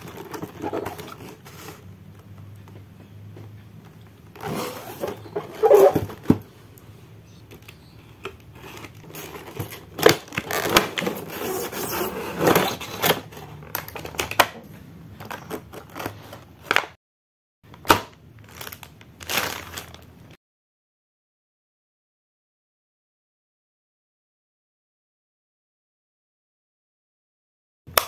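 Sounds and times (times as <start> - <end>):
hard plastic packaging clicks: 17.7 - 20.1
plastic bag crinkling: 18.4 - 20.3.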